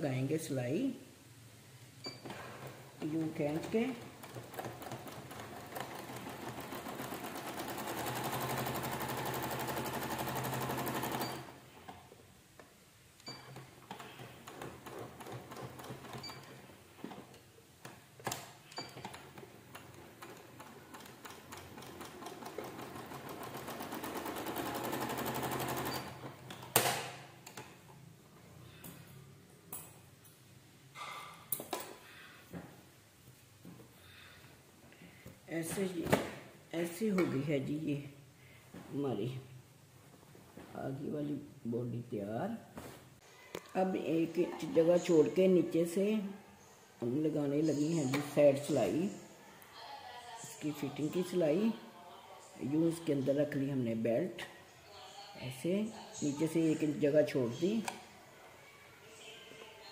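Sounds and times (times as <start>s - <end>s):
sewing machine stitching: 2.3s - 11.6s, 13.3s - 17.4s, 18.3s - 26.8s.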